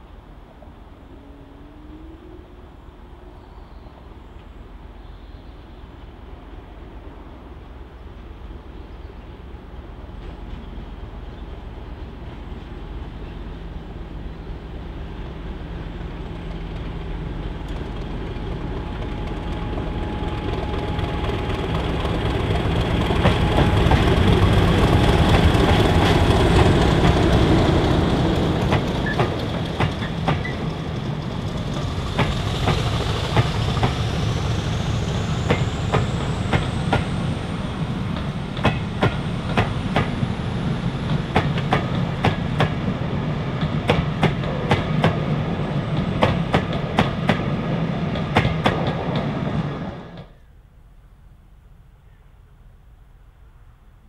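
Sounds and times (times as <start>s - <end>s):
diesel locomotive engine drone: 0.0s - 54.0s
train wheels clacking over rail joints: 20.3s - 37.2s.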